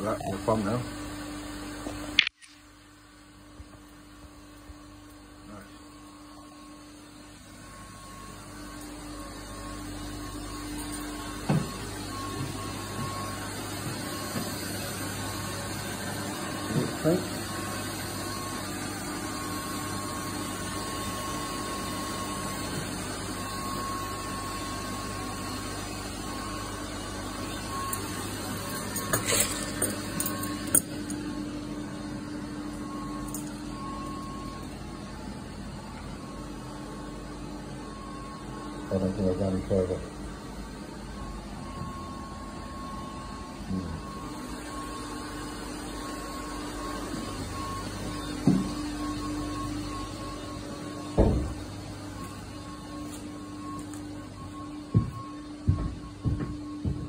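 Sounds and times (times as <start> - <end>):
machinery humming: 4.2 - 57.0.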